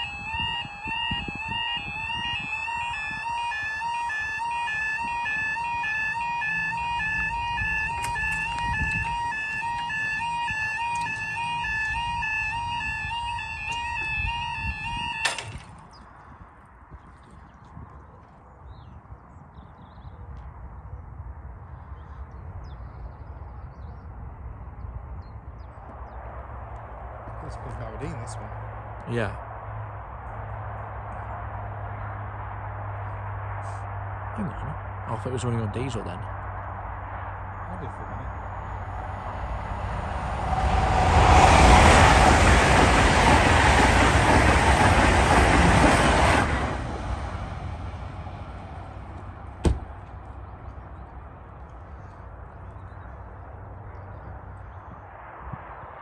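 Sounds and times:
two-pitch warning alarm: 0.0 - 15.8.

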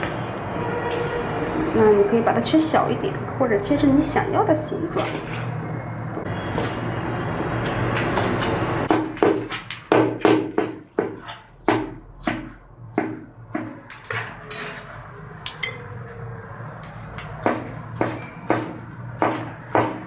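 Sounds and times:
cleaver chopping on plastic board: 8.9 - 13.8.

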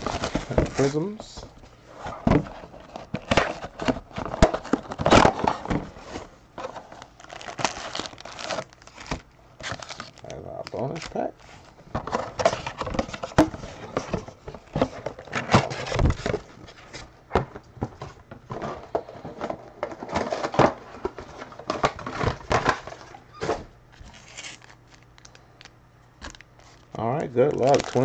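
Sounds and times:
plastic wrap crinkling: 0.0 - 1.2, 2.8 - 14.1, 23.9 - 28.0.

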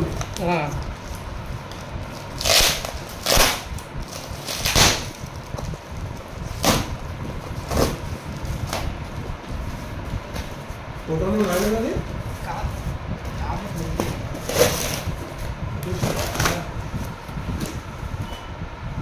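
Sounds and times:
cardboard parcel tearing: 2.3 - 5.3.

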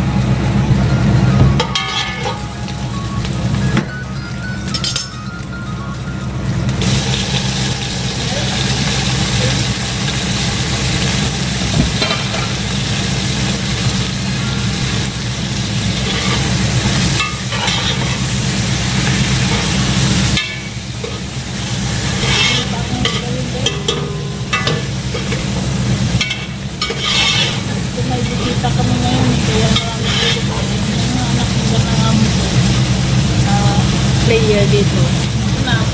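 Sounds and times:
food sizzling in a pan: 0.0 - 35.9
steady low hum: 0.0 - 35.9
utensil scraping a pan: 15.9 - 18.3, 21.9 - 30.8.

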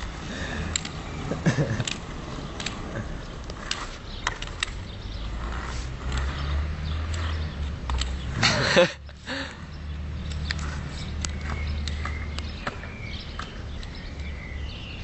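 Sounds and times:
skateboard wheels rolling on pavement: 0.0 - 15.0
clicks: 0.6 - 1.0.

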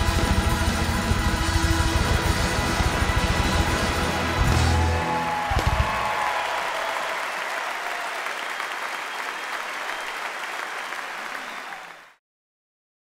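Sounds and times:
audience applauding: 4.1 - 12.2.

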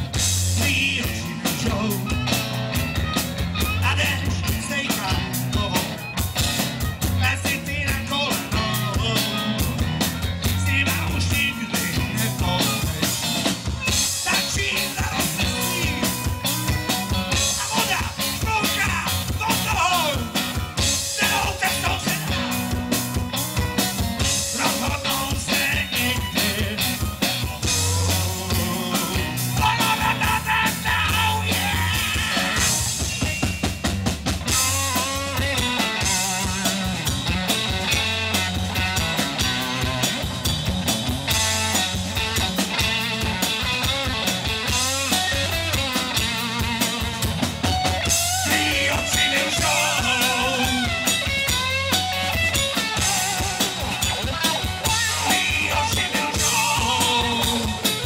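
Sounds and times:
drum kit beat: 0.0 - 58.0
rock band playing: 0.0 - 58.0
man singing: 0.2 - 2.7, 3.6 - 6.1, 7.1 - 13.2, 13.9 - 22.9, 24.2 - 33.4, 34.6 - 37.2, 48.0 - 51.3, 52.8 - 58.0.

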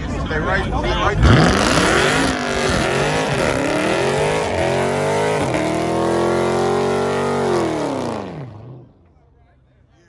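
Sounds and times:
car engine revving: 1.2 - 9.1.

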